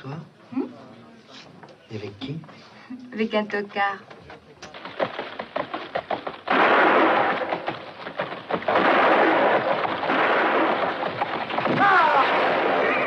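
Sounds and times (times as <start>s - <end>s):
sharp knocks: 4.1s - 12.0s.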